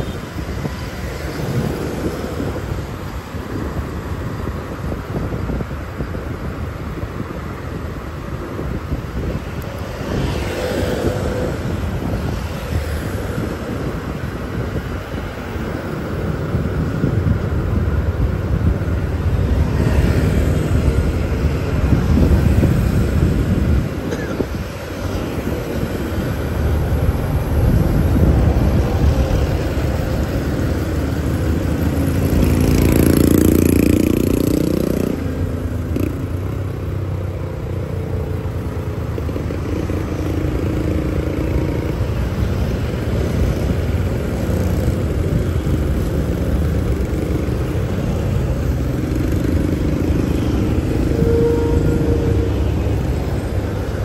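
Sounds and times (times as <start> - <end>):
traffic engines rumbling: 0.0 - 54.0
passing vehicle tone: 47.2 - 54.0.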